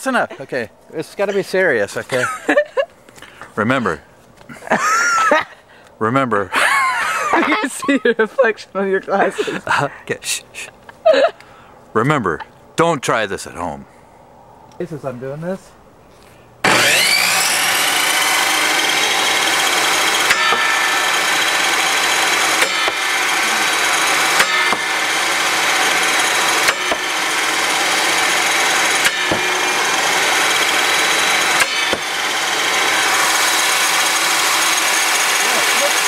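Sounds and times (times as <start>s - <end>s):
table saw motor whining: 16.6s - 36.0s.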